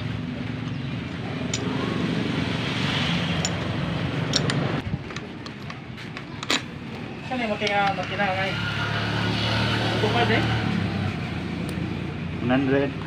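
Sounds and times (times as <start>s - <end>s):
vehicle engine humming: 0.0s - 9.2s.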